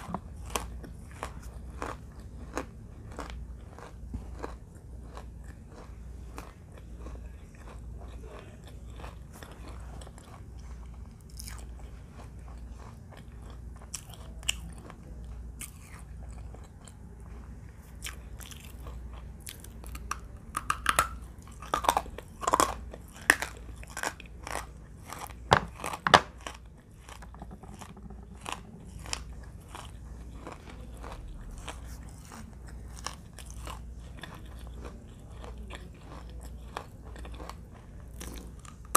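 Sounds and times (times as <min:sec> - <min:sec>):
chewing: 0:00.0 - 0:38.9.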